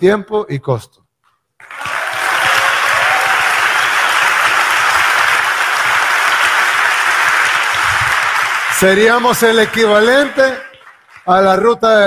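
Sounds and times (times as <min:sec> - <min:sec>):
large audience applauding: 0:01.6 - 0:11.7.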